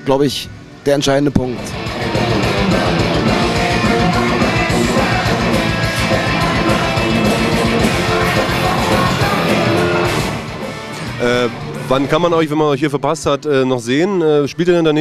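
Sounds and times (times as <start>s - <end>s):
electric guitar: 1.6s - 12.3s
steady drum beat: 1.6s - 12.3s
man singing: 2.4s - 10.1s.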